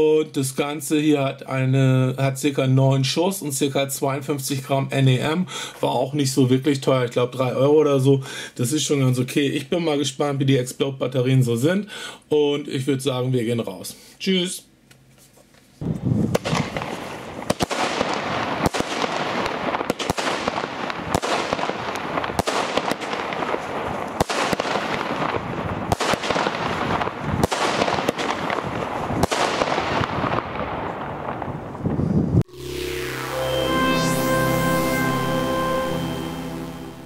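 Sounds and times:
firework bangs: 16.3 - 31.8.

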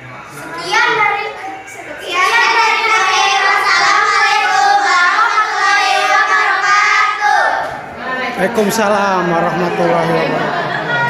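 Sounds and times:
children singing together: 0.5 - 8.0.

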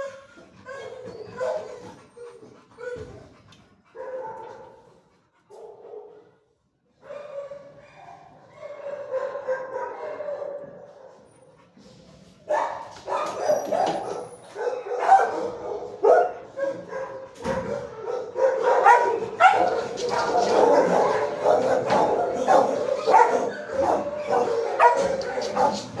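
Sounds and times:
dog barking and yelping: 0.0 - 3.2, 3.9 - 4.6, 7.0 - 11.2, 12.5 - 26.0
dog whining: 0.0 - 3.3.

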